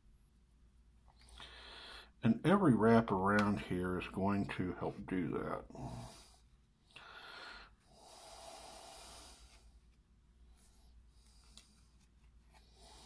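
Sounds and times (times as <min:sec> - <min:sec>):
man breathing through nose: 0:01.2 - 0:02.2, 0:05.7 - 0:09.8, 0:12.6 - 0:13.0.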